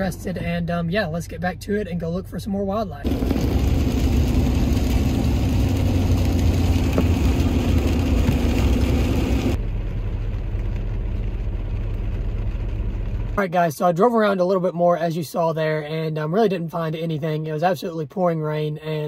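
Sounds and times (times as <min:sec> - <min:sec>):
engine hum inside vehicle: 0:00.0 - 0:13.4
hiss of road and rain: 0:03.0 - 0:13.4.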